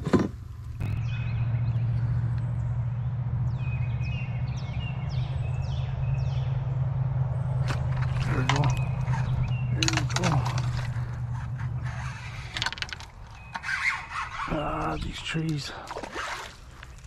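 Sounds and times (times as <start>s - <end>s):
low hum: 0.4s - 17.0s
clicks and rustles: 7.6s - 14.5s.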